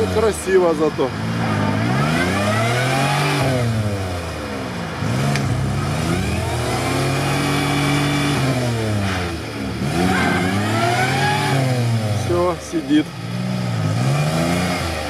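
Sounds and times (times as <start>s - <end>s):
truck engine revving: 0.0s - 15.0s.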